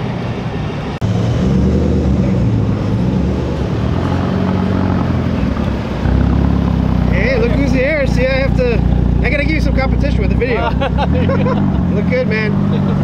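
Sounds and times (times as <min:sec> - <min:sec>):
car driving off: 0:00.0 - 0:13.0
car engine running steadily: 0:05.0 - 0:13.0.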